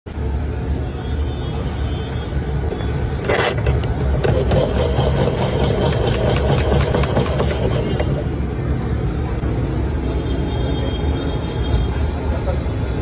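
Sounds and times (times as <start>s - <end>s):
spiral cutter rasping banana: 3.2s - 8.2s.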